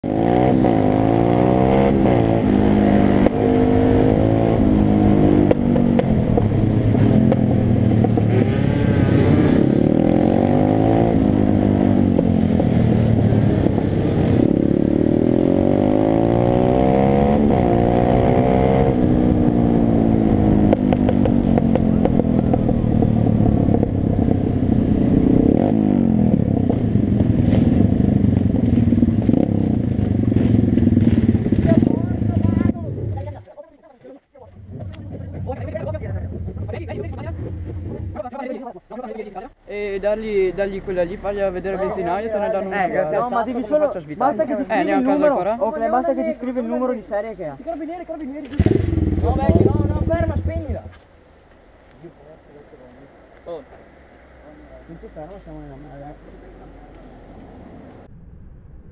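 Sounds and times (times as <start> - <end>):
motorbike engine revving: 0.0 - 33.4, 34.5 - 38.4, 48.4 - 51.1
wind rumble: 0.3 - 33.5, 34.4 - 38.4, 56.4 - 58.9.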